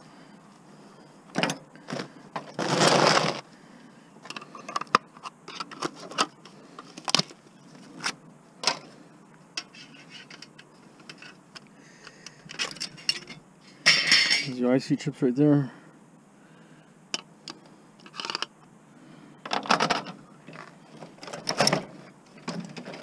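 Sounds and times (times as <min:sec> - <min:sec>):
plastic scrape: 0:01.9 - 0:03.4.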